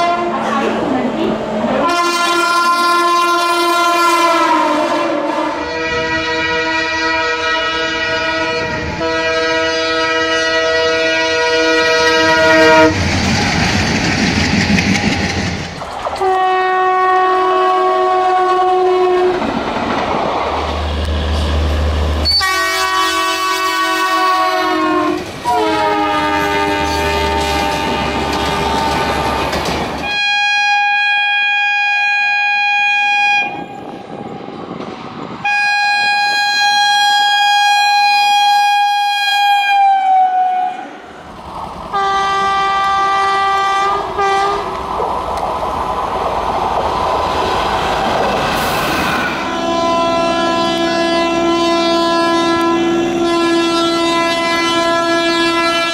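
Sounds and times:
locomotive horn blasts: 0.0 - 0.5, 1.8 - 13.0, 16.2 - 19.4, 22.2 - 33.8, 35.4 - 40.9, 41.9 - 44.6, 49.4 - 55.9
moving trains: 0.0 - 55.9.

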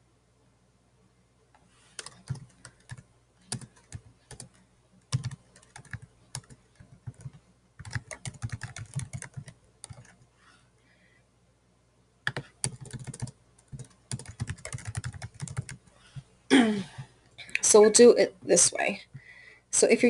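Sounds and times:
typing on computer keyboard: 2.0 - 10.2, 12.3 - 15.8.

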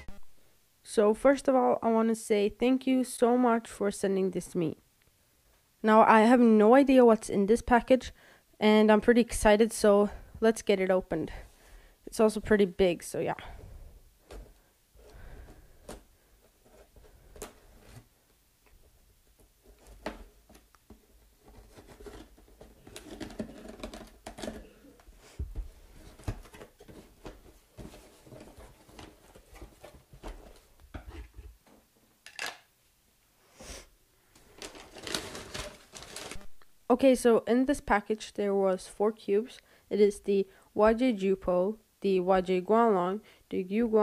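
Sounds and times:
cardboard flaps folding: 19.4 - 31.4, 34.6 - 36.6
paper packing rustling: 19.7 - 24.8, 25.5 - 30.8, 34.4 - 36.7.

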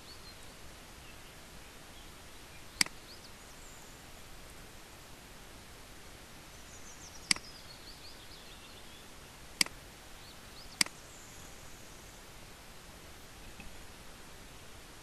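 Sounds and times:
low steady hiss: 0.0 - 15.0.

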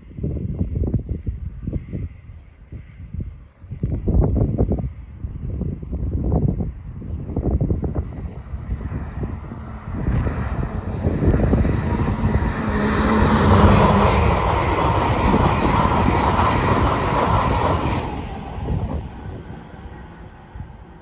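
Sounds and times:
train passing at speed: 4.3 - 21.0.

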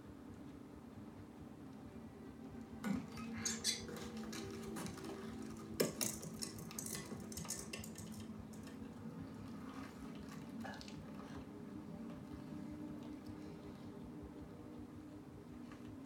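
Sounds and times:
steady low hum: 0.0 - 16.0
metallic clinks and clatter: 5.8 - 8.3.

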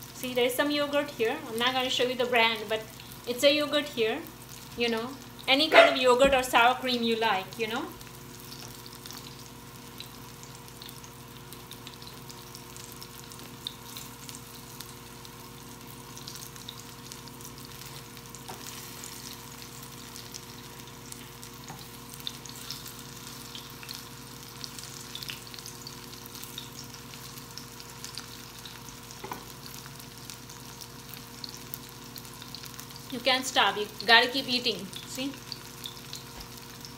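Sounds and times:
fritters sizzling in oil: 0.0 - 36.9.

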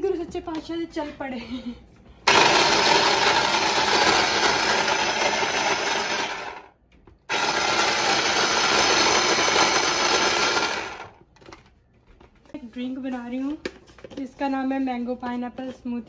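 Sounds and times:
electric food chopper running: 2.2 - 11.2.

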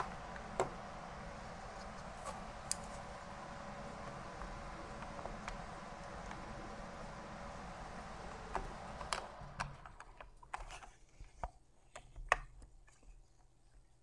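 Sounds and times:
faint hiss: 0.0 - 9.9.

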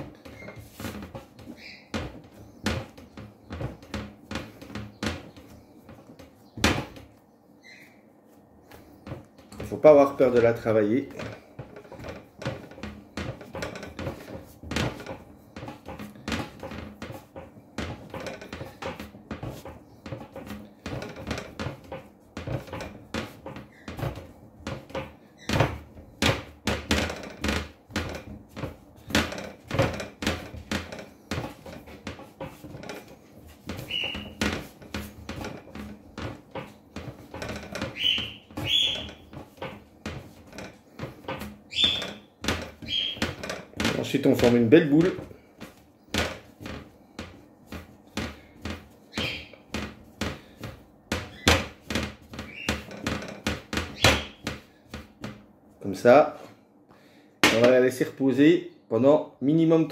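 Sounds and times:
dough thumping and rubbing: 0.0 - 56.7, 57.4 - 58.2
short high squeaks: 33.8 - 34.4, 37.9 - 39.3, 41.7 - 43.4, 49.1 - 49.6.

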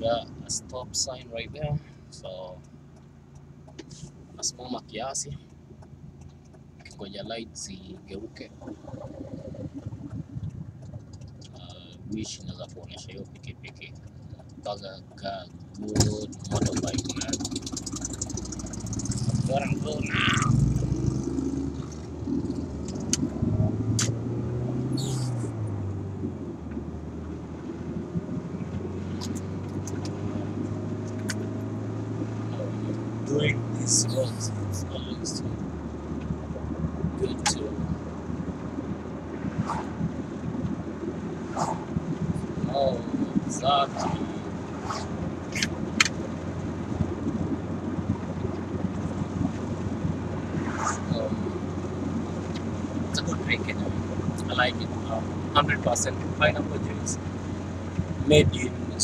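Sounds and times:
car engine and road noise: 0.0 - 59.0
sharp clicks: 21.8 - 24.2.

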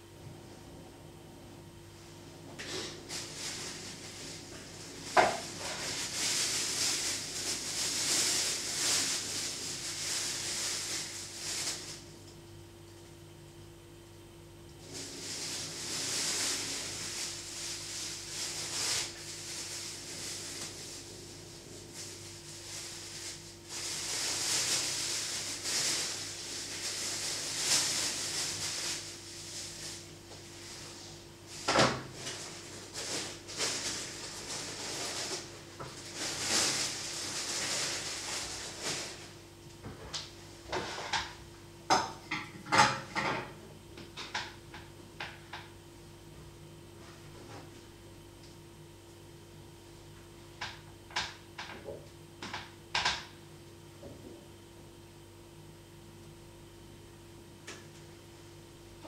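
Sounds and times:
faint steady hum: 0.0 - 59.0
rubbing and handling noises: 2.6 - 12.1, 14.8 - 39.4.

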